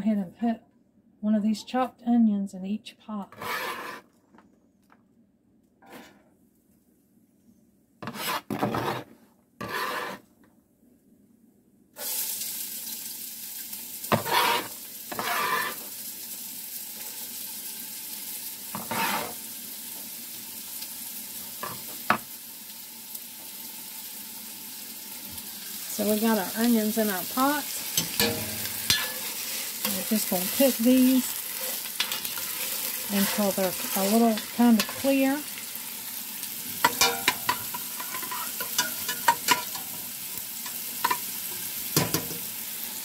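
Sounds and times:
onion sizzling in fat: 3.3 - 4.1, 8.0 - 10.3, 12.0 - 43.0
onion scraped on cutting board: 3.3 - 4.2, 5.8 - 6.3, 8.0 - 10.3, 14.1 - 15.9, 18.8 - 19.4
utensil scraping pot: 3.3 - 4.2, 8.0 - 10.3, 14.1 - 15.9, 18.8 - 19.4, 27.1 - 35.3, 36.8 - 39.9.

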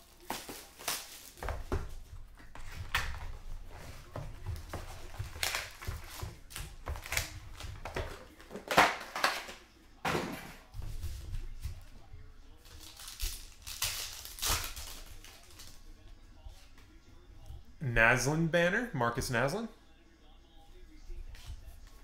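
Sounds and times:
cardboard and foil rustling: 0.0 - 9.6, 12.5 - 15.8.

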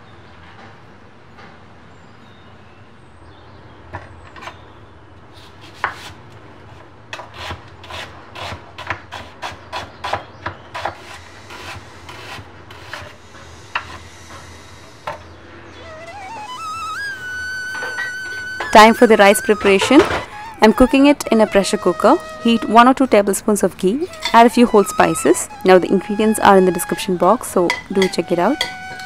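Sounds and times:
music: 15.8 - 29.0.

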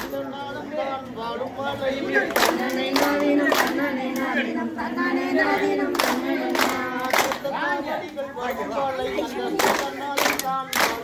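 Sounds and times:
group singing a folk song: 0.0 - 11.0
sharp hand claps: 2.3 - 4.3, 5.9 - 7.5, 9.6 - 11.0.

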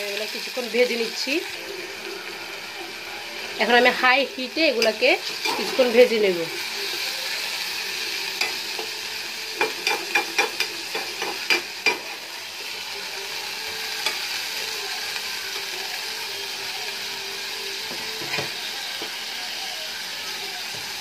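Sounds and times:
food sizzling in hot oil: 0.0 - 21.0
metal spatula scraping pan: 1.8 - 6.7.

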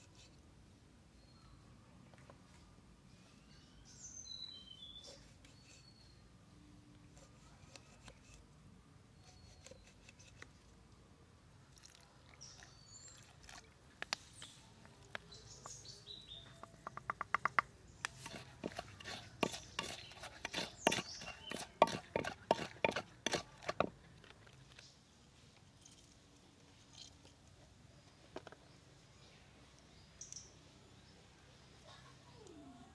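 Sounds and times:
faint bird chirps: 1.1 - 2.0, 2.6 - 6.4, 9.1 - 10.4, 28.6 - 32.9
pestle knocking in mortar: 16.9 - 24.0.

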